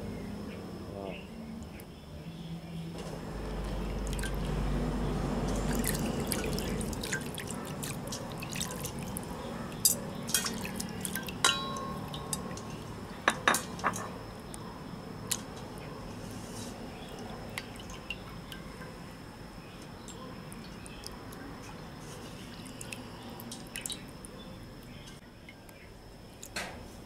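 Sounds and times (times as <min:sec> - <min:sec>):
water sloshing in metal bowl: 0:03.2 - 0:14.2.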